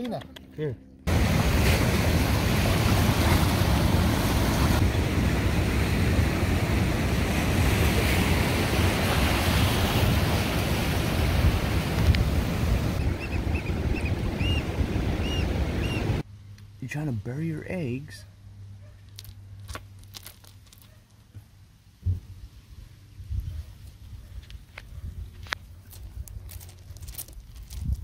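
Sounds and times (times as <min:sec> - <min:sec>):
surf breaking over rocks: 0:01.1 - 0:16.2
wind on microphone: 0:01.1 - 0:16.2.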